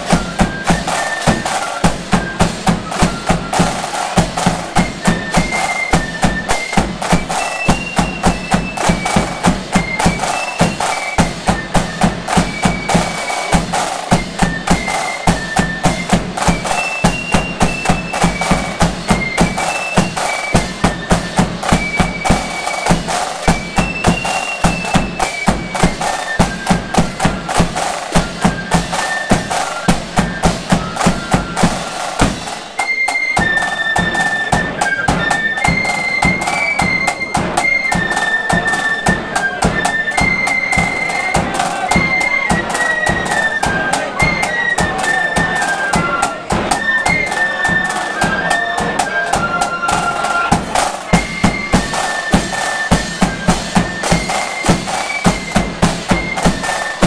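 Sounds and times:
flutes playing a march: 0.0 - 57.0
snare drums: 0.0 - 57.0
bass drum: 49.4 - 57.0.

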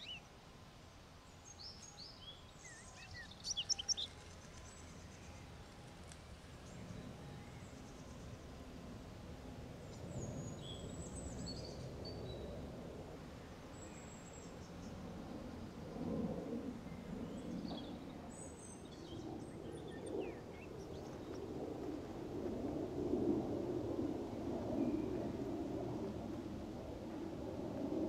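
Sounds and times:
bird chirps and twitters: 1.6 - 5.2.

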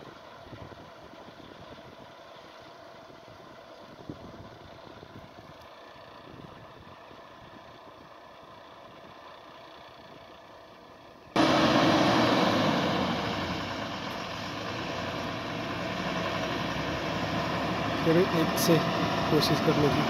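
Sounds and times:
truck diesel engine running: 0.0 - 20.0
loud rushing noise: 11.4 - 20.0.

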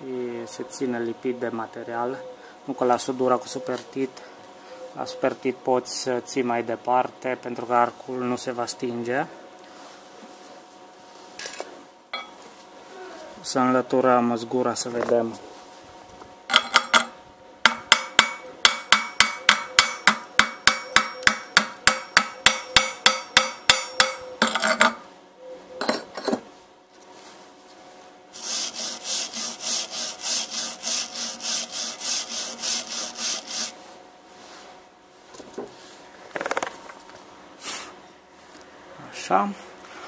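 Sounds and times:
hammer tapping on metal: 17.7 - 25.0.

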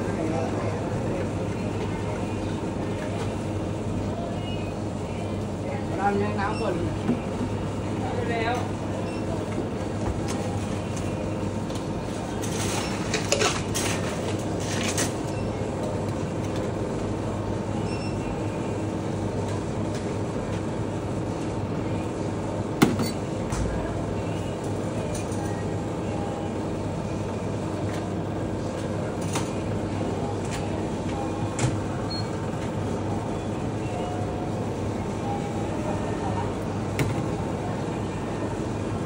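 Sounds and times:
steady mechanical hum: 0.0 - 39.0.

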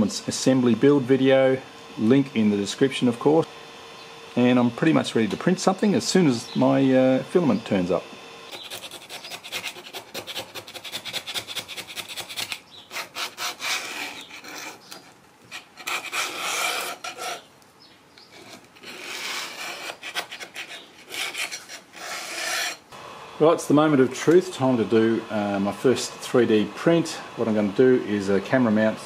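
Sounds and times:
scraper rasping: 8.5 - 17.5, 18.2 - 22.8.

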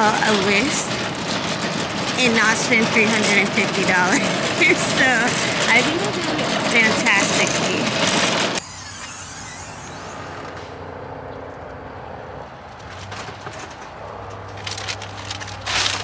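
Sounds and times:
shopping cart rattling over asphalt: 0.0 - 8.6, 12.7 - 16.0
low vehicle engine hum: 0.0 - 16.0
parking lot ambience: 0.0 - 16.0
plastic bags rustling: 14.4 - 16.0.

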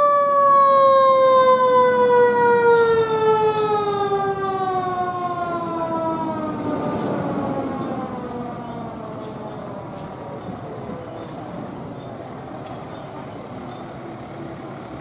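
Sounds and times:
mechanical siren winding down: 0.0 - 9.2.

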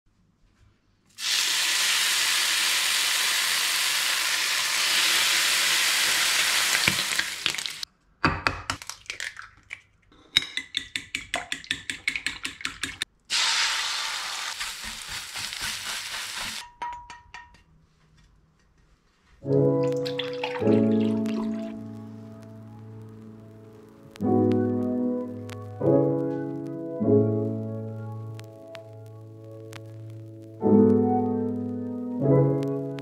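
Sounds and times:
food sizzling in a frying pan: 1.2 - 7.9, 13.3 - 16.6
egg cracking: 6.1 - 17.6, 19.7 - 24.4
fork beating eggs: 10.3 - 13.1
fork stirring eggs in pan: 10.4 - 13.1, 14.5 - 17.5.

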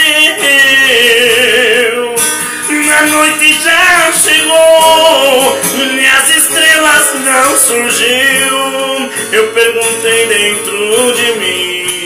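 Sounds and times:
man singing a hymn: 0.0 - 12.0
strummed acoustic guitar: 0.0 - 12.0.

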